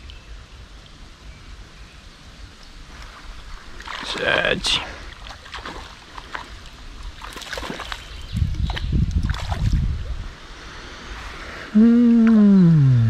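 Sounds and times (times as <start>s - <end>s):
stream water flowing: 2.5s - 11.1s
splashes: 3.7s - 9.9s
wind buffeting microphone: 8.1s - 10.4s.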